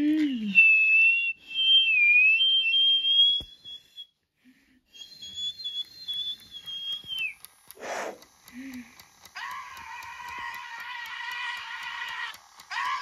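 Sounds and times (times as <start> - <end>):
person whistling high tone: 0.2 - 4.2, 4.9 - 8.1.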